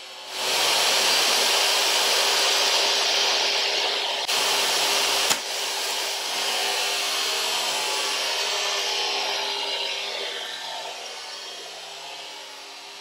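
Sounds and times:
table saw running: 0.0s - 13.0s
sharp click: 5.3s - 5.5s.

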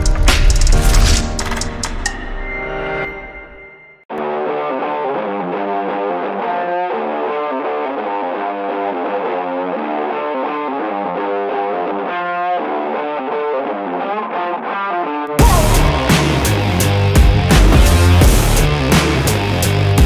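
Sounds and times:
distorted guitar melody: 4.1s - 20.0s.

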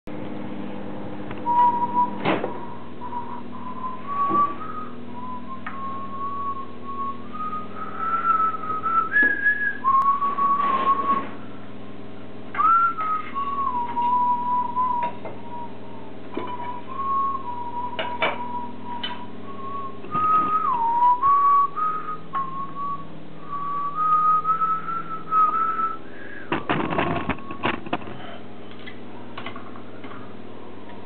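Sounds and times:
low electrical hum: 0.1s - 31.0s
person whistling a tune: 1.4s - 11.3s, 12.6s - 26.5s
knocks of kiln pieces handled: 26.5s - 28.4s.

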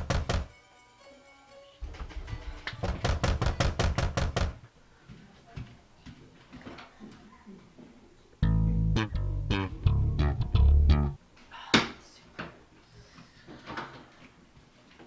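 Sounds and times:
rapid pounding on door: 0.0s - 0.5s, 2.8s - 4.6s
quiet music: 0.0s - 3.8s, 8.4s - 11.2s.

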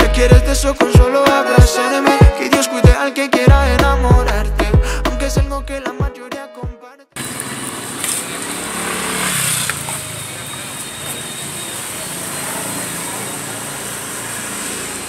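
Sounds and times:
motorbikes and scooters passing: 7.2s - 15.0s.

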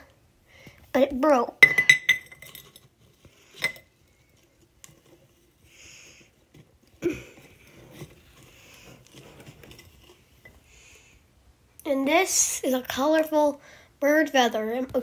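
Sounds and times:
hard object clinking: 1.6s - 5.5s
soft rustling: 2.6s - 11.2s.

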